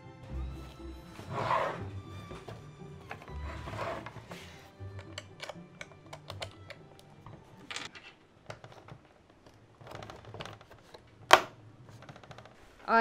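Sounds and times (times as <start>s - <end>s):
hands clicking plastic parts: 4.8s - 12.6s.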